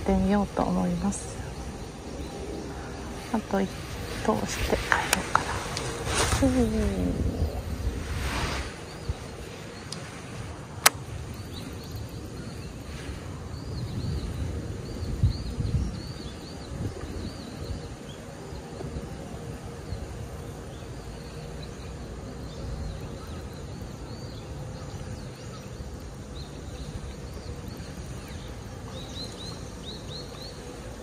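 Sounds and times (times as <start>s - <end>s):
steady low rumble: 0.0s - 31.0s
bird chirping: 19.8s - 31.0s.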